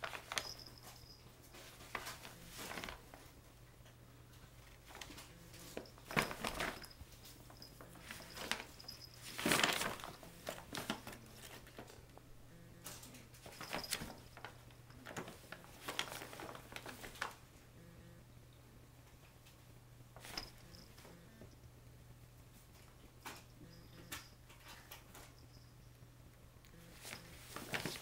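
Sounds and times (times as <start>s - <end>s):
kitten scrabbling in bag: 0.0s - 3.2s, 4.8s - 11.9s, 13.4s - 17.4s, 20.2s - 20.8s, 26.9s - 28.0s
paper bag rustling: 0.0s - 3.3s, 4.8s - 12.0s, 13.4s - 17.4s, 20.2s - 20.8s, 26.9s - 28.0s.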